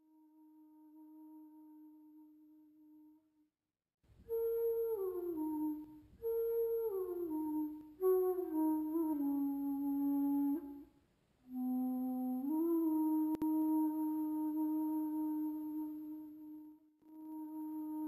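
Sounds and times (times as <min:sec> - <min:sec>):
flute-like wind instrument: 0:04.2 - 0:18.0.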